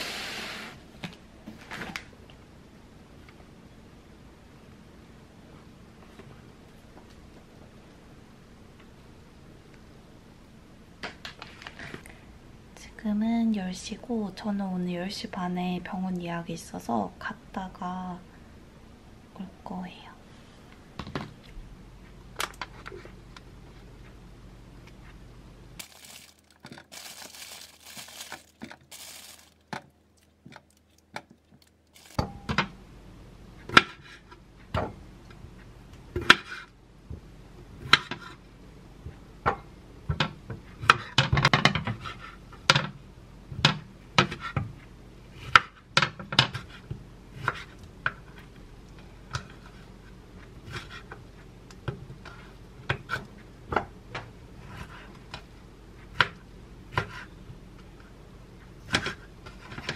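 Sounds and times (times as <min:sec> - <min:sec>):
plastic packaging crinkling: 0:25.8 - 0:32.2.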